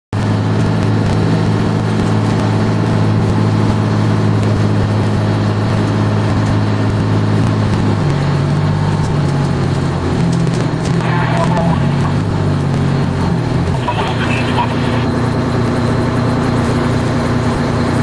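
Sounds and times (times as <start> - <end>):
large vehicle engine idling: 11.0 - 12.6, 13.2 - 18.0.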